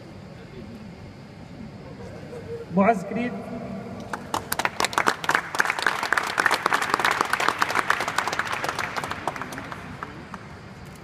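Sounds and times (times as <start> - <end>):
sharp hand claps close by: 4.1 - 10.5
crowd applauding: 4.1 - 11.0.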